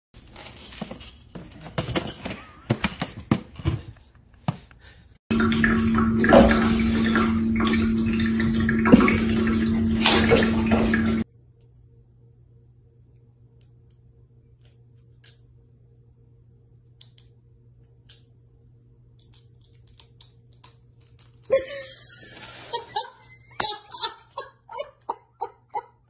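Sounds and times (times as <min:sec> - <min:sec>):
pump hum: 0:05.3 - 0:11.3.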